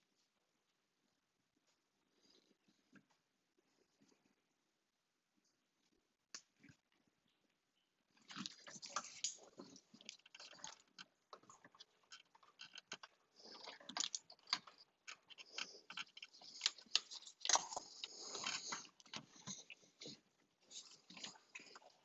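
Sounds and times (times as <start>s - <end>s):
tool clicking and scraping on hose: 8.3s - 21.8s.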